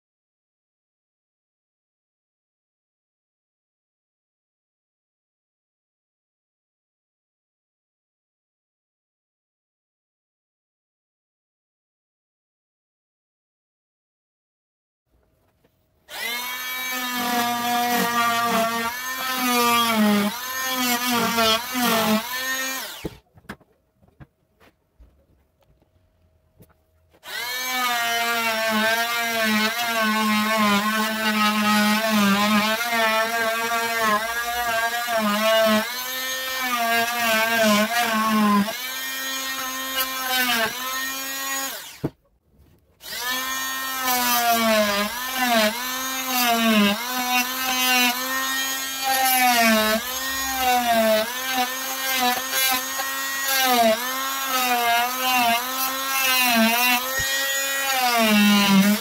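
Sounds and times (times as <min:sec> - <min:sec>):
multi-tool cutting wood: 0:16.0 - 0:24.7, 0:26.6 - 0:59.0.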